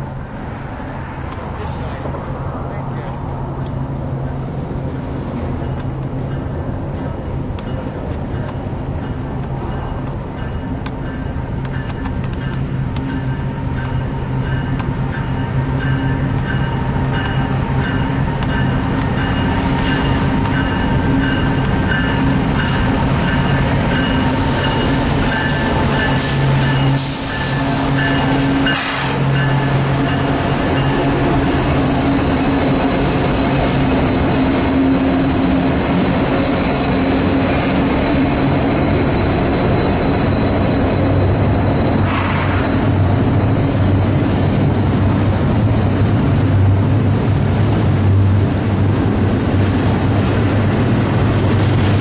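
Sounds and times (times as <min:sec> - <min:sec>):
diesel locomotive engines droning: 0:00.0 - 0:52.0
train cars rumbling past: 0:00.0 - 0:52.0
high wheel squeal: 0:17.3 - 0:44.0.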